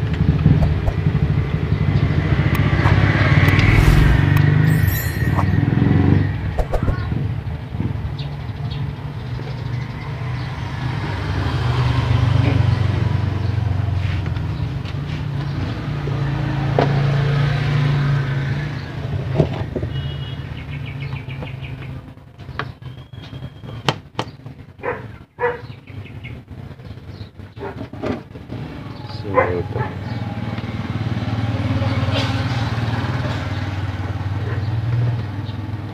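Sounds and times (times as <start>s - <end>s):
vehicle engine humming: 0.0s - 8.1s.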